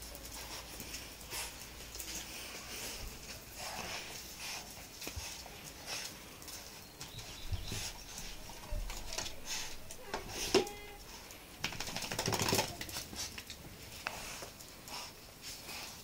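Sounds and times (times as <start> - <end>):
dogs scuffling: 0.0 - 16.0
dog claws clicking on tiles: 11.6 - 14.6.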